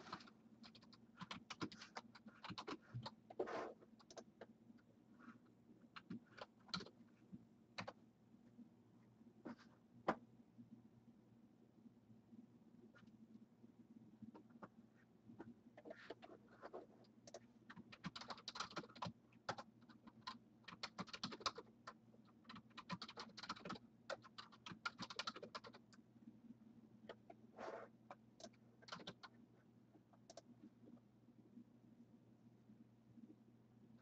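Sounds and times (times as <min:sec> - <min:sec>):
low steady hum: 0:00.0 - 0:34.0
typing on computer keyboard: 0:00.1 - 0:03.2, 0:06.0 - 0:07.0, 0:17.3 - 0:25.9, 0:28.4 - 0:29.3.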